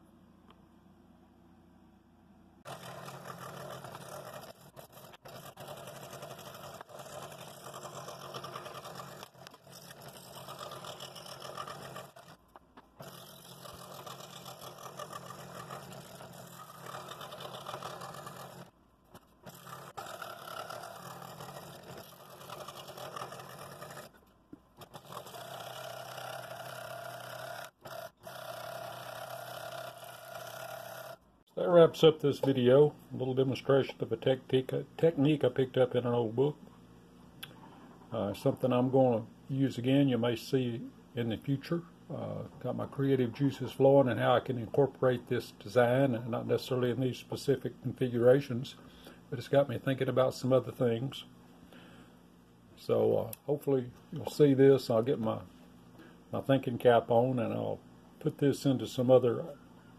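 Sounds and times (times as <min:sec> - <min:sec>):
scroll saw blade cutting wood: 0:02.6 - 0:24.2, 0:24.8 - 0:31.2
saw motor hum: 0:02.6 - 0:31.4.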